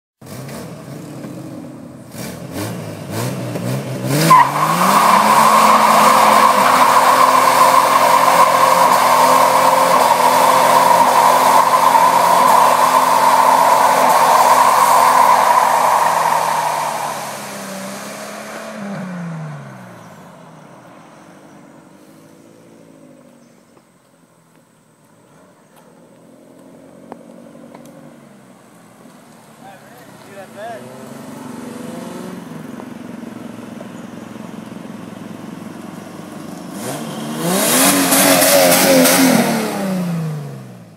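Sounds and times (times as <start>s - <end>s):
car engine revving: 0.2s - 21.6s, 29.6s - 40.9s
tyres squealing: 4.3s - 17.4s.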